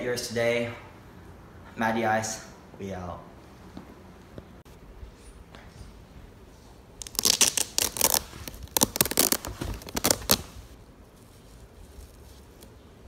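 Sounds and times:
velcro straps ripping open: 0:07.0 - 0:10.8.

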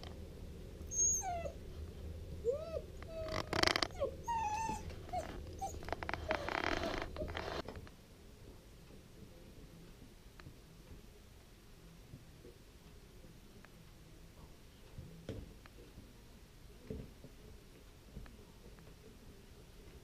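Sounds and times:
puppy whining: 0:00.8 - 0:01.6, 0:02.4 - 0:07.6.

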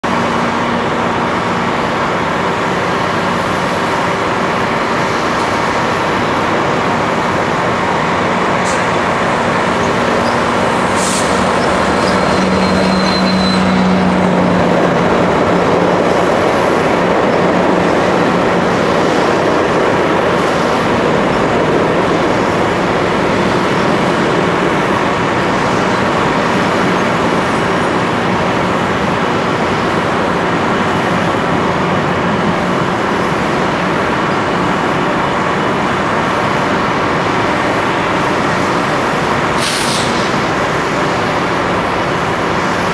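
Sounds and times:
diesel locomotive engine hum: 0:00.0 - 0:42.9
train wheels rumbling on rail: 0:00.0 - 0:42.9
wheel squeal: 0:09.7 - 0:14.3.

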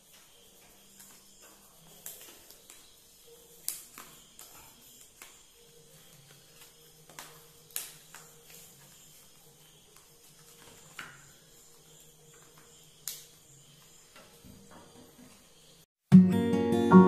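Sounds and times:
leaf crackling clicks: 0:03.6 - 0:05.4, 0:06.2 - 0:09.1, 0:13.0 - 0:13.3.

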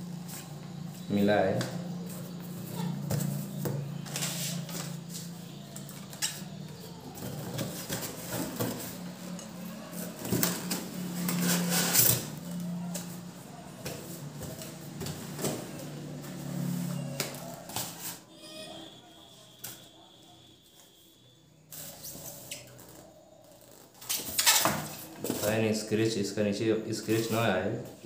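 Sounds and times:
cardboard and plastic rustling: 0:01.9 - 0:18.3, 0:21.7 - 0:25.8.

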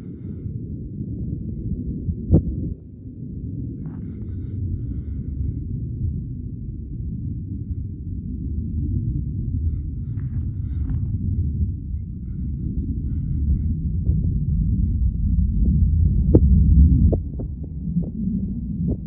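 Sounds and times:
distant rocket rumble: 0:00.0 - 0:19.0.

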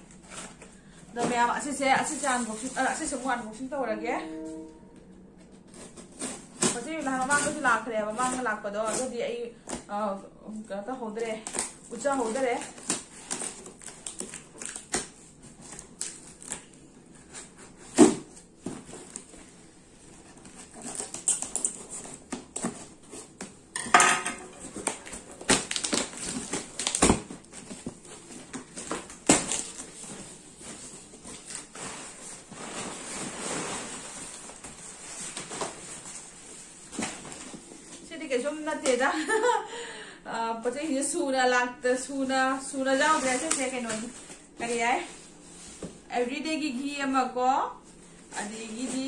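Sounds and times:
packing paper rustling: 0:11.2 - 0:23.6, 0:24.6 - 0:38.1, 0:42.8 - 0:46.1
scissors cutting packing tape: 0:12.5 - 0:16.7, 0:20.4 - 0:23.2.

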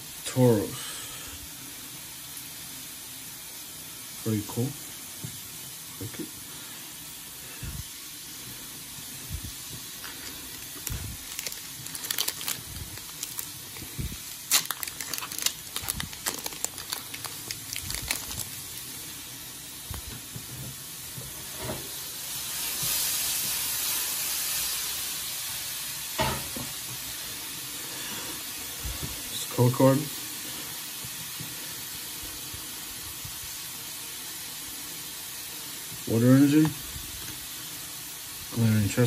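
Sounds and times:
foil wrapper crinkling: 0:09.8 - 0:20.1
trading cards being handled: 0:10.0 - 0:18.9.

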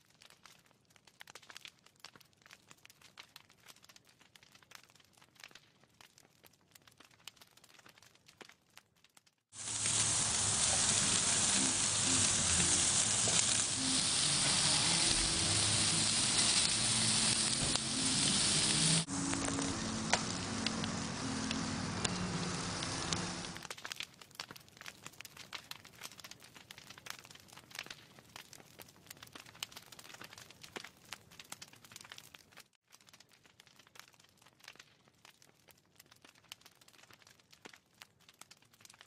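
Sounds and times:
faint crackling and popping: 0:00.0 - 0:39.0
food sizzling on grill: 0:09.6 - 0:23.6.

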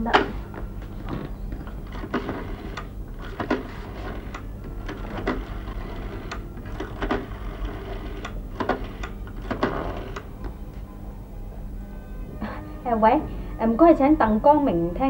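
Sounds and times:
steady low hum: 0:00.0 - 0:15.0
rotary dial clicking and whirring: 0:00.1 - 0:10.5.

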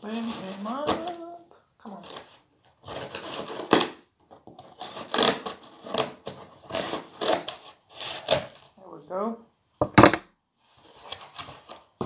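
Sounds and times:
scissors slitting packing tape: 0:02.9 - 0:04.0, 0:04.7 - 0:08.7.

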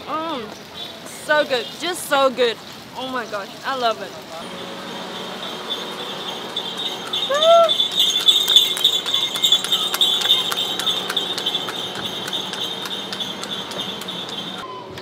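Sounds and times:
high-pitched shrill ringing: 0:04.5 - 0:15.0
hoof clicks on road: 0:05.4 - 0:14.6.

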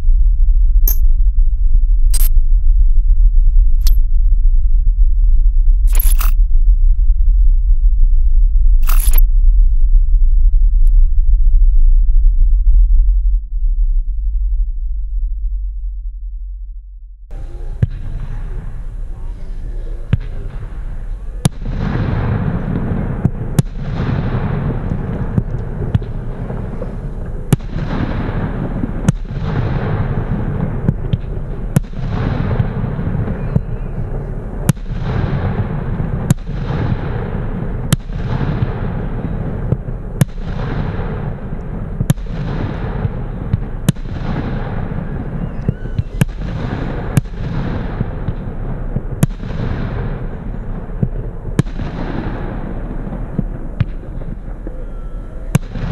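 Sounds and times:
firework bangs: 0:17.3 - 0:55.9
rumbling echo: 0:17.3 - 0:55.9.

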